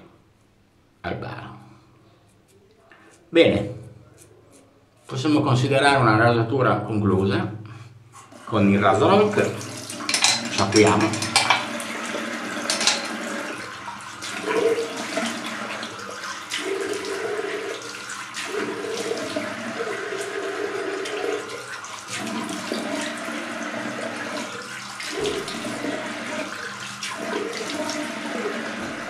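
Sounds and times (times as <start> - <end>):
tap water running into sink: 8.9 - 29.0
water splashing: 9.2 - 29.0.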